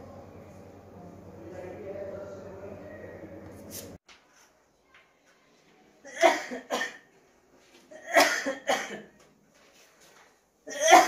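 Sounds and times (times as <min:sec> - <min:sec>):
man coughing: 0:06.1 - 0:07.0, 0:07.9 - 0:09.1, 0:10.7 - 0:11.0.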